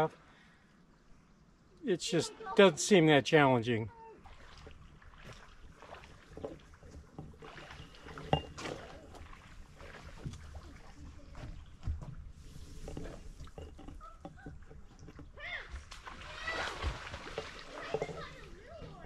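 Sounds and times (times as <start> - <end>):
water lapping and sloshing: 0.0 - 19.0
small knocks: 6.2 - 9.4, 11.4 - 16.1, 16.8 - 19.0.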